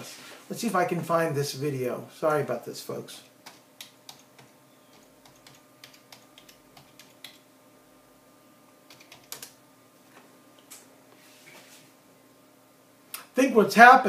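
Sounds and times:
typing on a computer keyboard: 3.4s - 7.4s, 8.9s - 9.6s.

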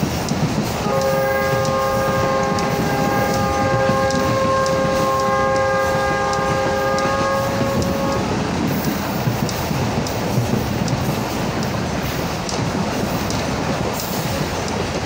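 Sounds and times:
rumble of moving train: 0.0s - 15.0s
train horn long blast: 0.8s - 8.4s.

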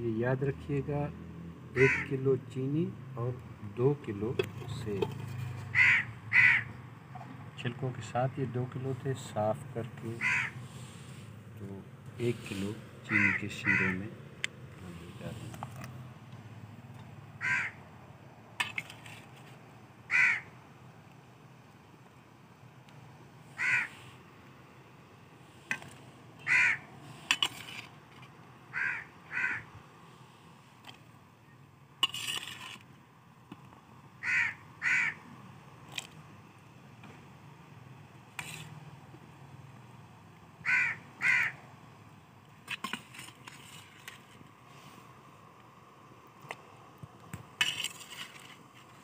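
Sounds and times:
crow cawing: 1.8s - 2.2s, 5.7s - 6.8s, 10.2s - 10.6s, 13.1s - 14.0s, 17.4s - 17.8s, 20.1s - 20.6s, 23.5s - 24.1s, 26.4s - 26.9s, 28.7s - 29.7s, 34.2s - 35.2s, 40.6s - 41.6s.

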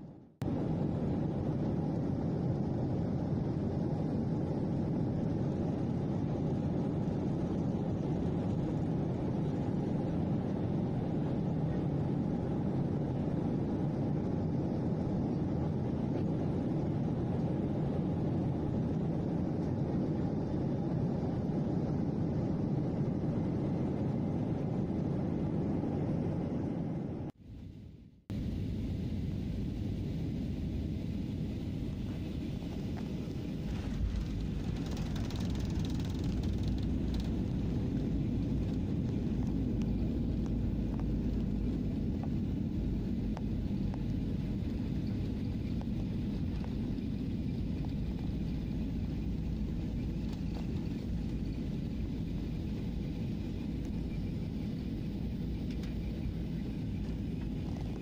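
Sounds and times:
jet engines rumbling: 0.0s - 58.0s
wheels rumbling on runway: 28.3s - 58.0s.

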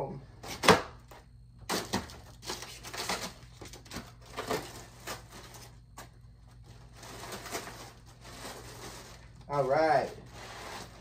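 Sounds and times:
plastic bag crinkling: 2.2s - 11.0s.

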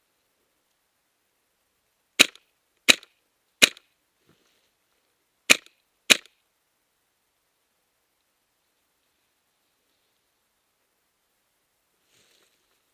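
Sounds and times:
airsoft gun shots: 2.2s - 3.8s, 5.5s - 6.3s.

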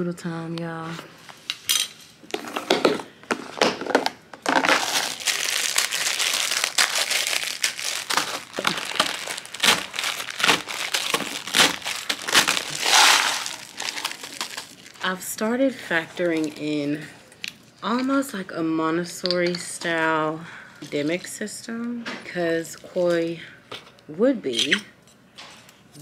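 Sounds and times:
noodles crunching: 2.6s - 15.2s
plastic wrapper crinkling: 2.8s - 15.3s, 16.0s - 16.7s.

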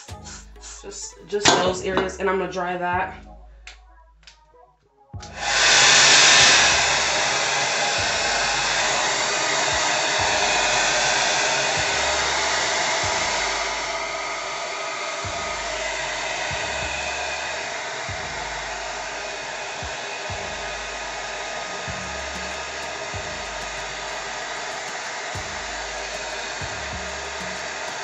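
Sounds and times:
hair dryer running: 5.4s - 28.0s.

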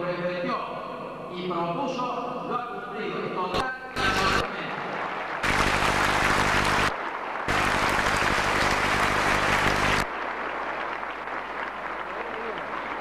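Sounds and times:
crowd applauding: 4.0s - 13.0s.

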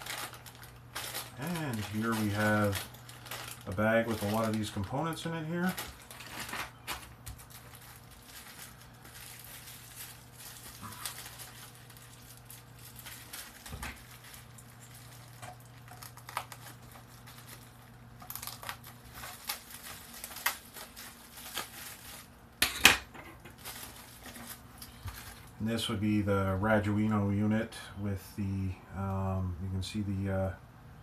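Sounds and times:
rustling: 0.0s - 22.4s, 23.4s - 25.6s
bubble wrap crinkling: 0.0s - 22.8s, 23.4s - 27.3s.

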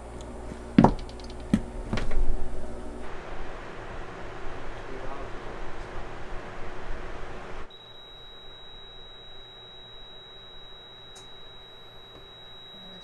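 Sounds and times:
loud rushing noise: 1.7s - 7.7s
high-pitched meter beep: 7.7s - 13.0s.

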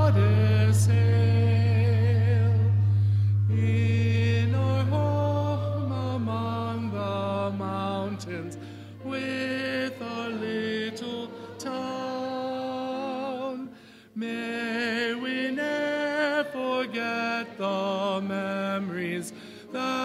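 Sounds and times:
people singing a hymn: 0.0s - 20.0s.

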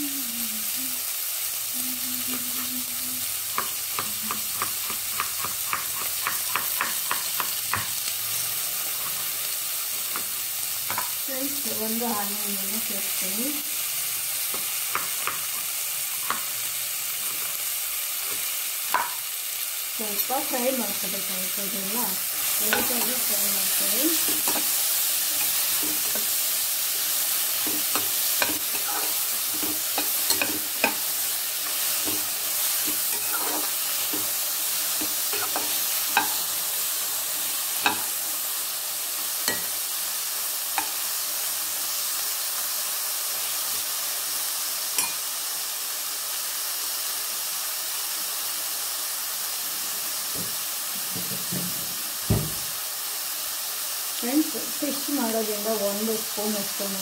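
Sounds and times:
vegetables sizzling in oil: 0.0s - 57.0s
metal spoon scraping pan: 22.4s - 24.8s, 27.6s - 36.5s
dull thump: 52.3s - 52.6s.

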